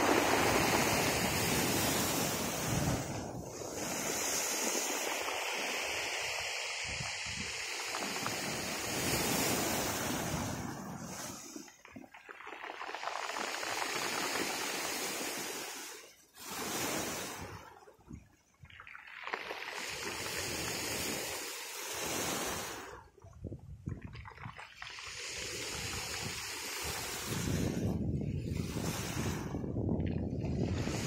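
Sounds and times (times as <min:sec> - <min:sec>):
sea waves breaking on shore: 0:00.0 - 0:31.0.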